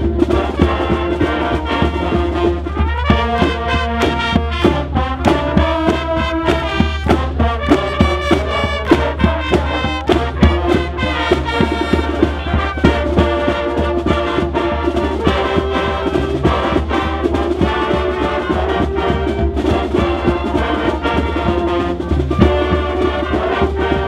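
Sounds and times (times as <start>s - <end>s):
brass band playing: 0.0s - 24.0s
drums beating: 0.0s - 24.0s.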